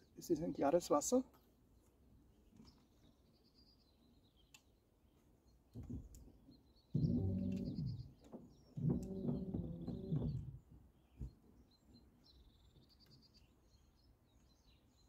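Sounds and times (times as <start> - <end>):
faint birdsong: 0.0 - 15.0
stick creaking groan in riverbed: 7.0 - 8.2, 8.8 - 10.6.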